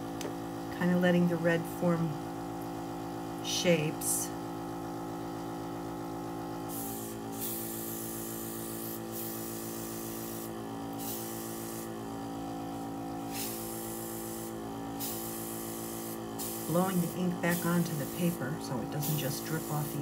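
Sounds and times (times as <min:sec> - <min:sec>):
steady hum: 0:00.0 - 0:20.0
airbrush air hiss: 0:06.7 - 0:12.0, 0:12.7 - 0:20.0.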